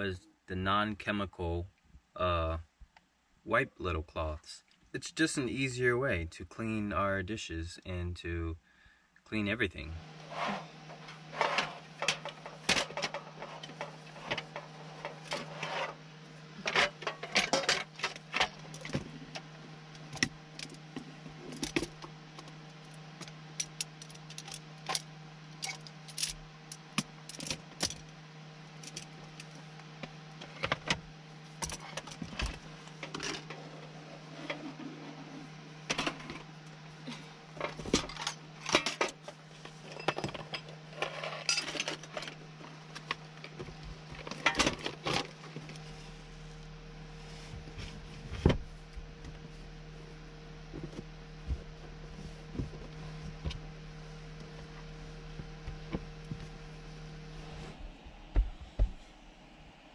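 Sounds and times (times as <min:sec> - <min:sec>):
steady low hum: 0:00.0 - 0:59.9
cooking gear clattering: 0:10.3 - 0:16.0, 0:16.6 - 0:19.1.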